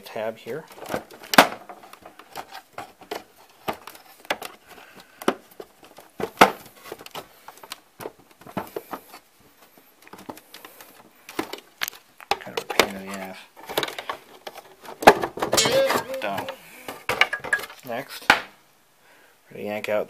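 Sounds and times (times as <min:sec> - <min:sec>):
handling noise: 0:15.5 - 0:16.6, 0:17.2 - 0:17.8.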